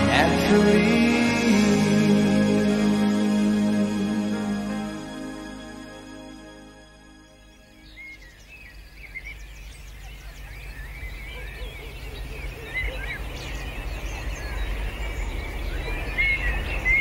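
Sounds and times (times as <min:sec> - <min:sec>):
small birds chirping and twittering: 0:07.1 - 0:17.0.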